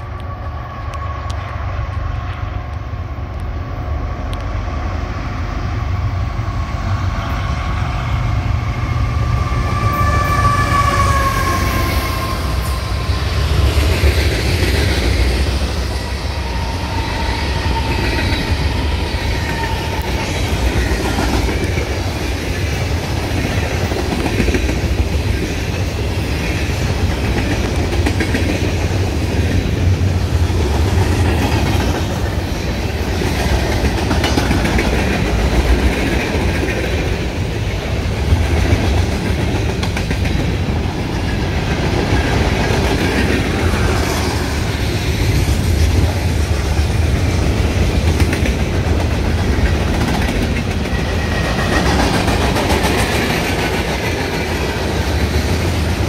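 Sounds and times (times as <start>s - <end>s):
clickety-clack of freight cars: 0.0s - 56.0s.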